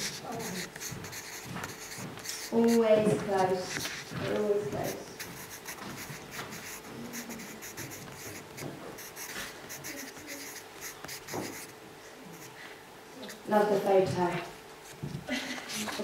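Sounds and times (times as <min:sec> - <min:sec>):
pencil scratching on paper: 0:00.0 - 0:12.6.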